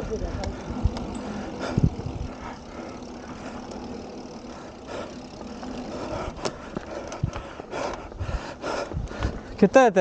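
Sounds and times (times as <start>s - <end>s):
wind noise: 0.0s - 2.8s, 6.1s - 9.6s
bike tyres rolling on dirt: 0.0s - 10.0s.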